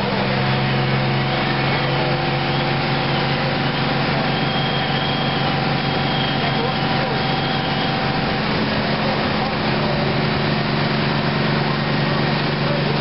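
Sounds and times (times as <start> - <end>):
fire engine motors running: 0.0 - 13.0.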